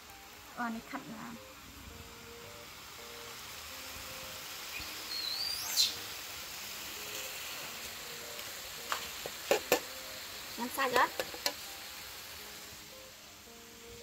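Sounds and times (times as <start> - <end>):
outdoor background hiss: 0.0 - 14.0
bird chirp sweeping upward: 4.7 - 6.0.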